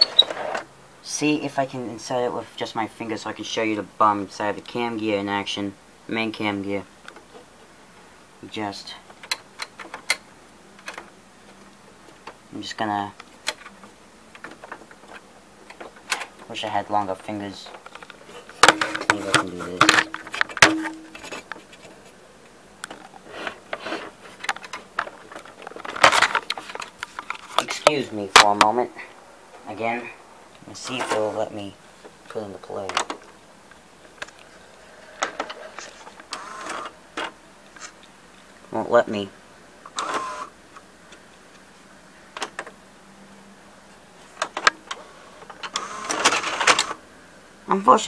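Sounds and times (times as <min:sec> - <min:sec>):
plastic parts scraping and clicking: 0:00.0 - 0:00.7, 0:10.8 - 0:12.4, 0:13.2 - 0:16.5, 0:17.6 - 0:22.2, 0:22.8 - 0:28.7, 0:32.3 - 0:33.4, 0:35.2 - 0:38.1.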